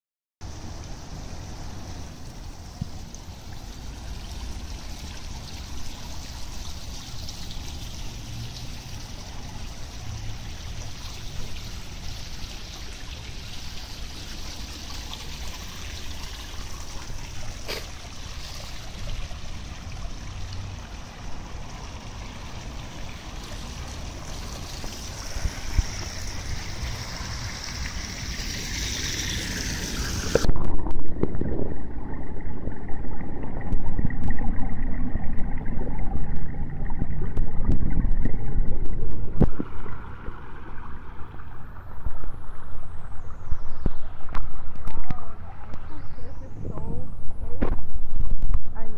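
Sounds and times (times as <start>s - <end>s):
deep rumble: 30.4s - 48.9s.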